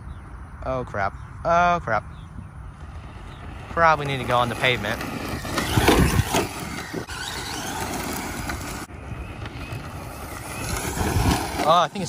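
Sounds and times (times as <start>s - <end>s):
rc car motor whining: 2.6s - 12.0s
tyres crunching on gravel: 2.8s - 12.0s.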